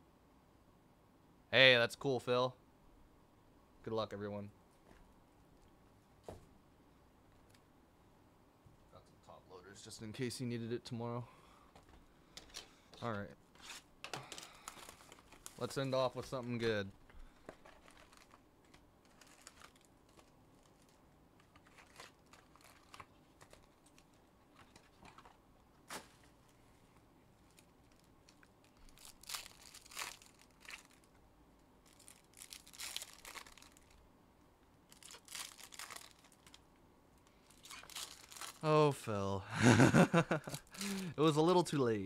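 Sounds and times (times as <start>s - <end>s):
foil wrappers crinkling: 13.6s - 26.4s, 27.4s - 31.2s, 31.8s - 34.0s, 34.9s - 36.6s, 37.2s - 38.6s, 40.3s - 41.1s.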